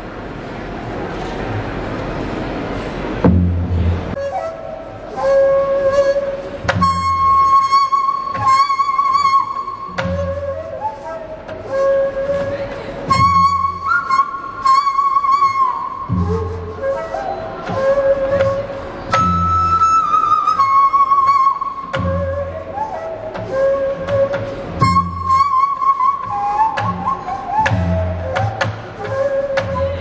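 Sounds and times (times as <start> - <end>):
deep drum strokes: 3.0 - 4.4
flute playing long wavering notes: 3.8 - 30.0.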